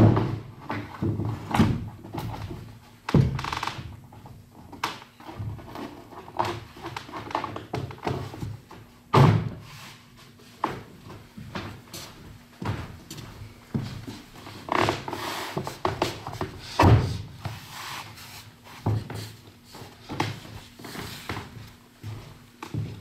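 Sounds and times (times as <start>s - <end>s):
floorboards thunking: 0.0s - 3.5s, 7.6s - 9.7s, 12.6s - 17.6s.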